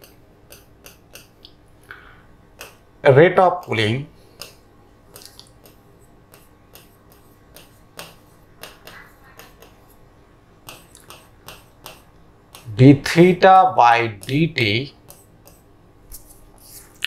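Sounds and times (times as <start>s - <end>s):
pen scratching while writing: 5.6s - 9.7s, 15.0s - 17.0s.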